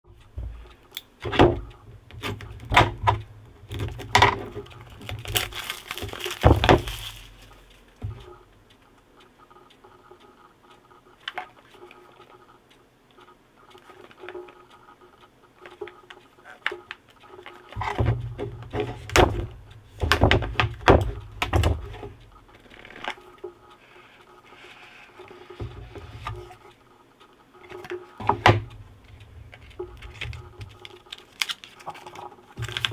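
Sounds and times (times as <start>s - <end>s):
packaging handling clicks and taps: 2.2s - 7.6s, 29.5s - 32.9s
knocks and thuds: 6.1s - 7.0s, 17.8s - 22.1s.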